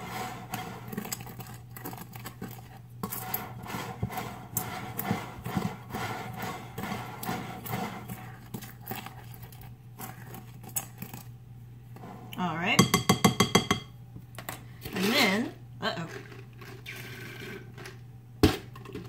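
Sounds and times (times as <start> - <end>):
utensil scraping glass bowl: 0.0 - 11.2.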